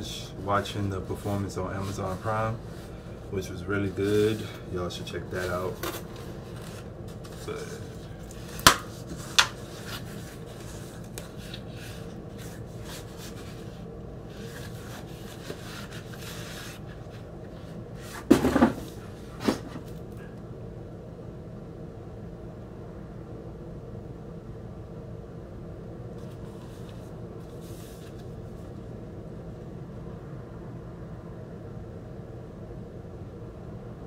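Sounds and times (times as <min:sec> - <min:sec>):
cardboard scraping rustle: 0:00.2 - 0:03.0, 0:03.8 - 0:20.0, 0:26.2 - 0:28.8
cardboard snapping: 0:08.2 - 0:10.1.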